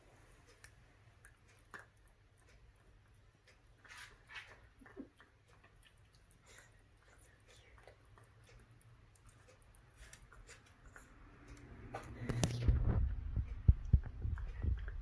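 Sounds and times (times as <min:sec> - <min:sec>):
puppy teeth clicking on bone: 0:00.6 - 0:03.2, 0:07.0 - 0:12.6.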